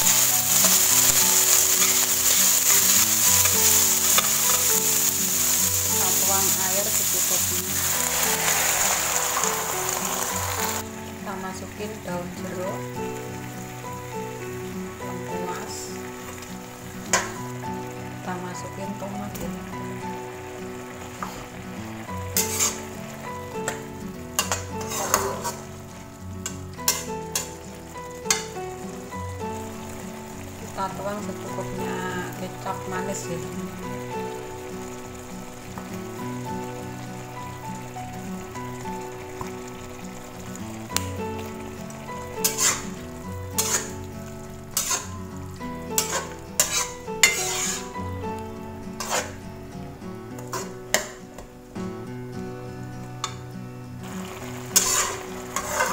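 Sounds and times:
background music: 0.0 - 55.9
sauce sizzling: 0.0 - 55.9
spatula scraping and clacking in wok: 0.1 - 6.2, 22.4 - 22.9, 24.4 - 25.7, 26.4 - 27.6, 42.4 - 44.0, 44.8 - 45.2, 46.0 - 48.0, 49.0 - 49.4, 50.4 - 51.5, 54.4 - 55.9.

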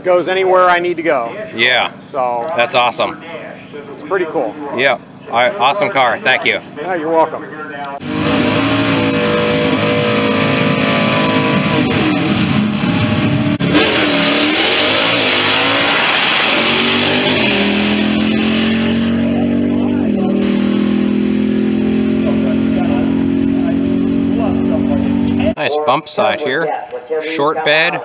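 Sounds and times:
drag racing car accelerating: 0.1 - 25.6.

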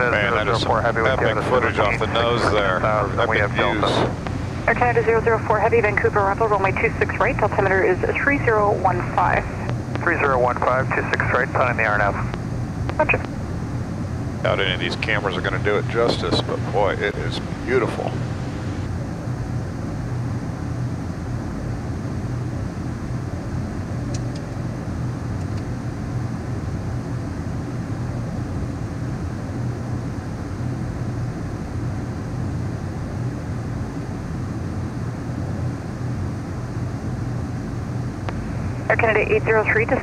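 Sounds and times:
airflow rushing: 0.0 - 7.0
low constant hum: 0.0 - 40.0.

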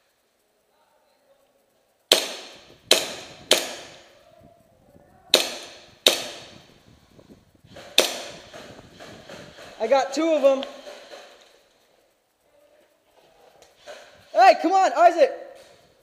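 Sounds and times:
airsoft pistol shots: 2.1 - 4.1, 5.3 - 6.7, 7.8 - 9.7.

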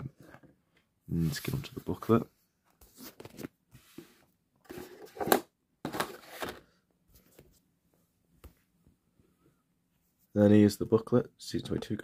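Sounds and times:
paper and card rustling: 2.8 - 7.5.

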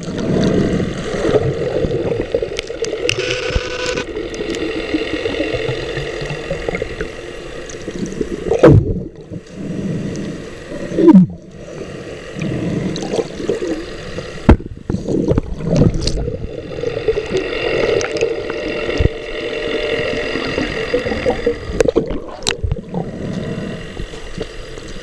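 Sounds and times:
steady hum: 2.2 - 14.8
water gurgling underwater: 4.1 - 11.6, 12.4 - 19.2, 20.1 - 24.5.

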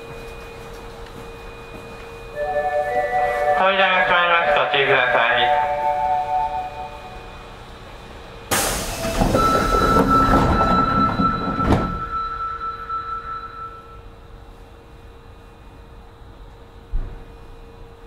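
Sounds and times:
steady high beep: 2.3 - 7.5, 9.3 - 14.0
subway doors sliding shut: 2.4 - 14.1.

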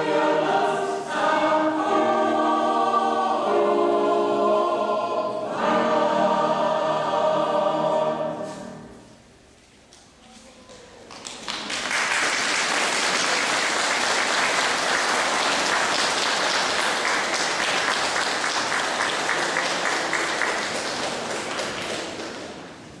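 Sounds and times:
audience applauding: 11.0 - 22.8.

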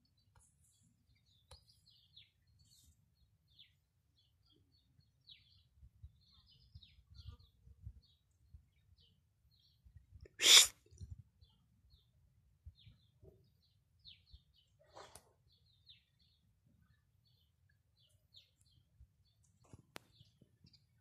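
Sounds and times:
faint bird chirps: 0.2 - 10.7
brief rustle: 14.8 - 15.3.

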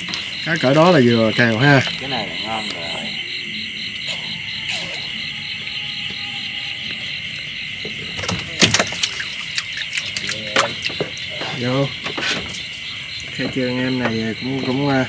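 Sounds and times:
night insects trilling: 0.0 - 15.0.

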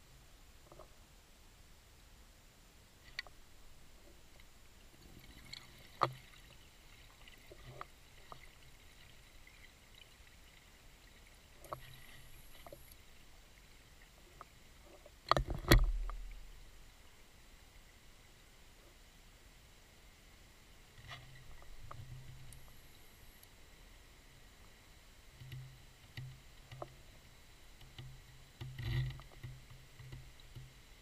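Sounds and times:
small clicks: 3.0 - 3.4, 11.6 - 13.0.

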